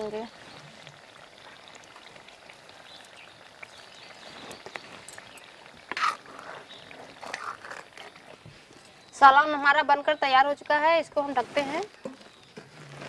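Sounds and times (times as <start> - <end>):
liquid simmering: 0.0 - 13.0.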